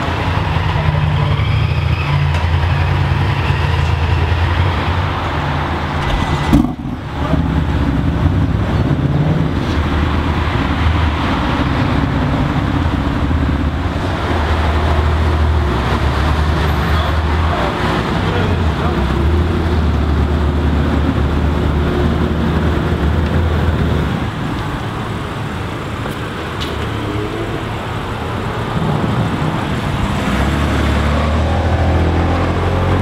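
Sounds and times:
car engine idling: 0.0s - 30.2s.

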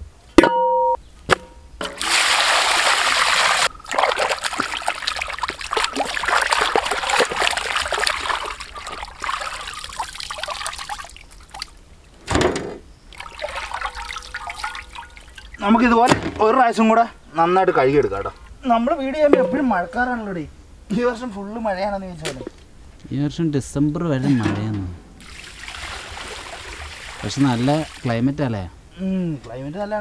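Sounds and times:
water rushing into a metal tray: 1.8s - 11.6s, 13.2s - 15.6s, 25.2s - 28.1s
water splashing and sloshing: 1.8s - 12.2s, 13.1s - 16.5s, 24.4s - 28.1s
dull thump: 12.2s - 12.8s, 16.0s - 16.5s.

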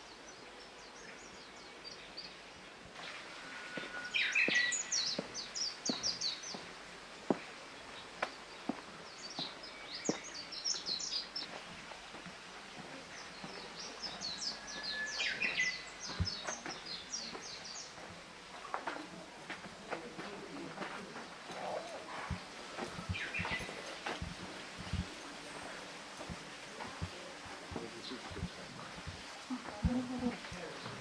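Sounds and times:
songbird singing: 0.0s - 31.0s.

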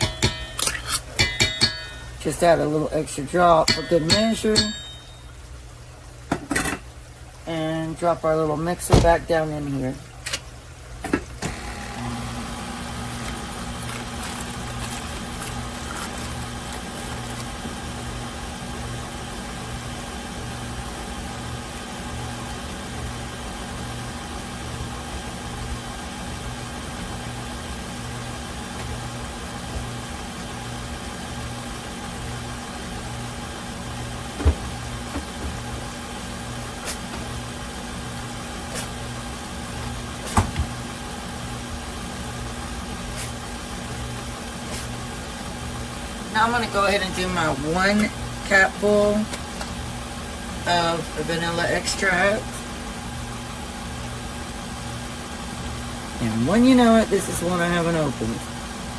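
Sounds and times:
stand mixer motor hum: 11.4s - 46.3s.

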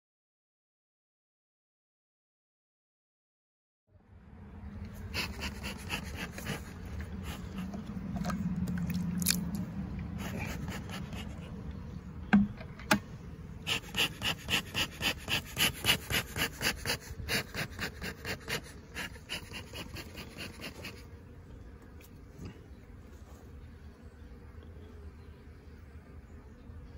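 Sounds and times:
fast rhythmic panting: 5.0s - 8.0s, 10.2s - 11.6s, 13.6s - 21.0s.

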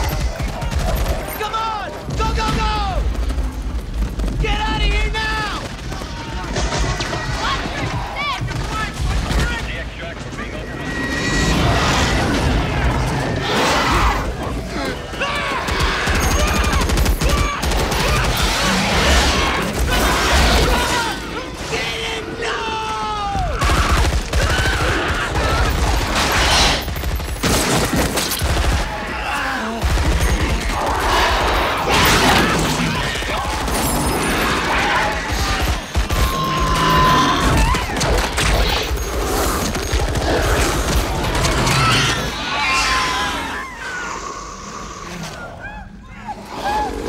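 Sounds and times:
automatic rifles firing: 0.0s - 10.0s, 14.5s - 21.1s, 23.3s - 42.1s.

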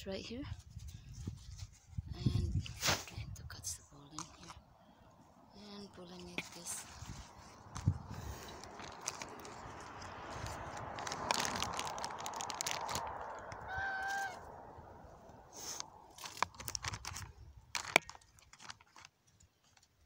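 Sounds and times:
rustling noise: 0.5s - 4.6s, 5.7s - 14.6s, 15.3s - 19.9s
goose honking: 13.7s - 14.4s.

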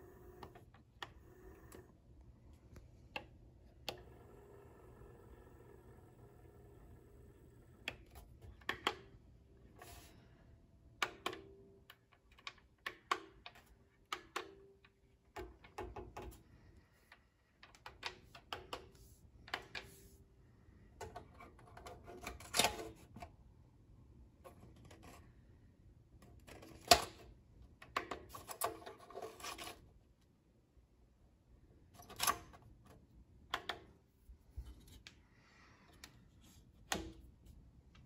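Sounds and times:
push buttons clicking: 11.0s - 16.4s.

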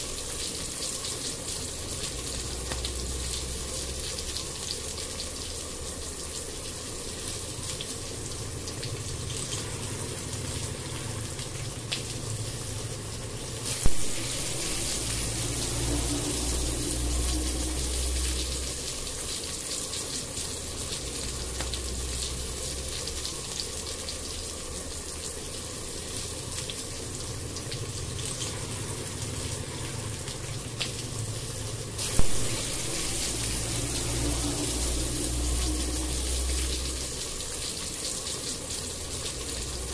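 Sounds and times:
food sizzling in oil: 12.8s - 23.8s, 26.2s - 39.9s.

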